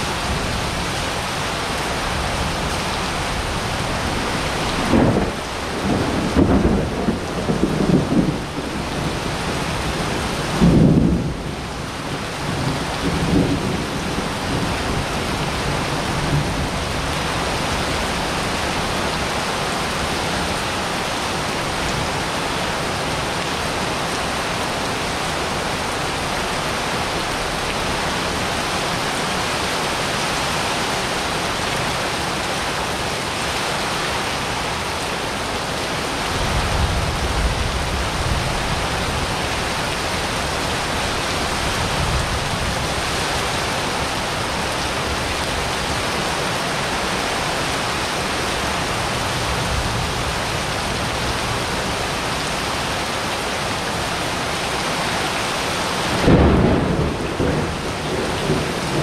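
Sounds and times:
rain pouring onto wet patio: 0.0 - 59.0
thunder rumbling: 3.2 - 19.4, 56.1 - 59.0
thunder crack: 4.8 - 8.8, 56.2 - 59.0.

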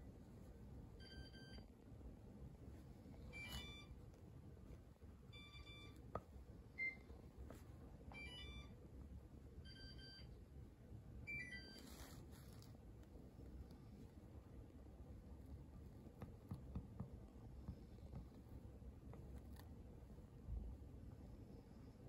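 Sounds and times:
faint short electronic beeps: 3.2 - 4.0.

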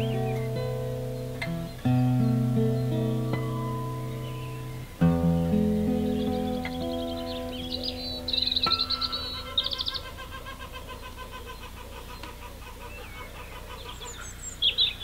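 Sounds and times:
acoustic guitar chord: 0.0 - 9.5
birds trilling and chirping: 0.0 - 15.0.

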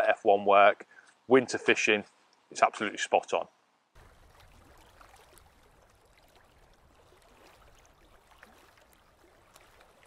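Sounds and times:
water lapping and splashing: 4.0 - 10.0.

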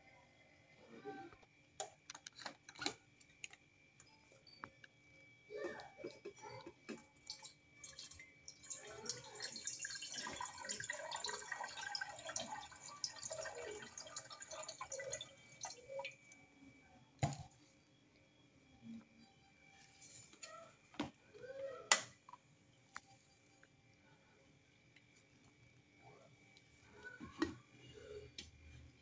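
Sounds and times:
water pouring into kettle: 7.2 - 16.3.

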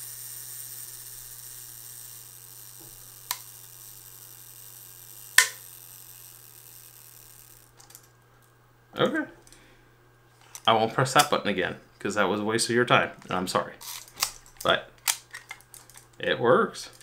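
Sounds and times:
camera self-timer whirring: 0.0 - 8.1
sharp mechanical clicks: 0.2 - 8.0.

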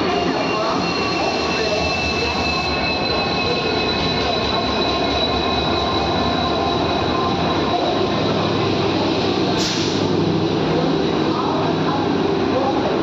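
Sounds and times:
high-pitched wheel squeal: 0.0 - 8.1.

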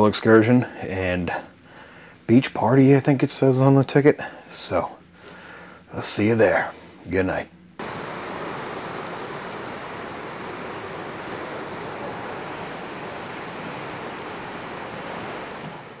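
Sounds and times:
rushing sea and wind: 7.8 - 16.0.

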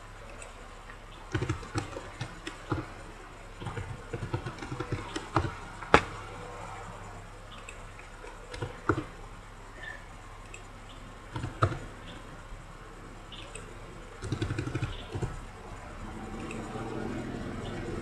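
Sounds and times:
faint low hum: 0.0 - 18.0
keyboard and mouse clicking: 1.3 - 3.0, 3.6 - 6.2, 7.5 - 9.1, 11.3 - 12.2, 13.4 - 15.4, 16.3 - 16.8.

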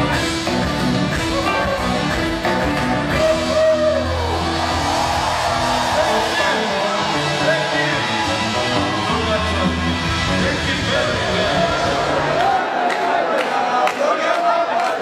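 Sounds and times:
pop band playing: 0.0 - 12.6
person singing: 5.9 - 12.2.

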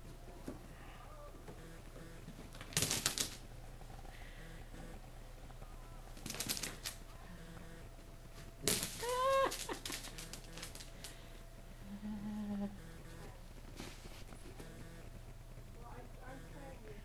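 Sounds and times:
rapid clicking and rattling: 2.5 - 3.5, 6.2 - 7.0.

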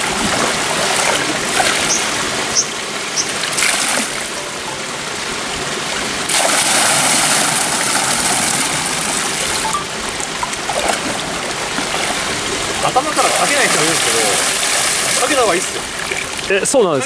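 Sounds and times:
stream rushing: 0.0 - 17.0
short splash: 6.3 - 8.7
water poured splashing into river: 6.3 - 9.6, 13.1 - 16.5.

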